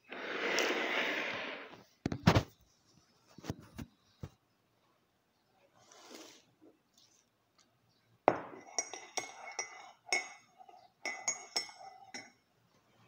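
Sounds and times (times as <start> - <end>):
spoon knocking mug: 8.3 - 12.4
spoon clinking against mug: 8.3 - 12.5.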